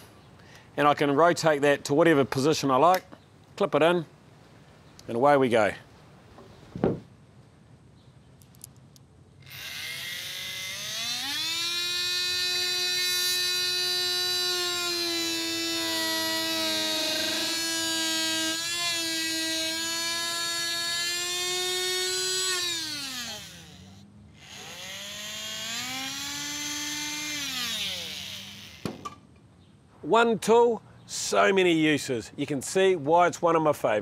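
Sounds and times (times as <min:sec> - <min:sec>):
multi-tool cutting plasterboard: 0:09.5 - 0:29.0.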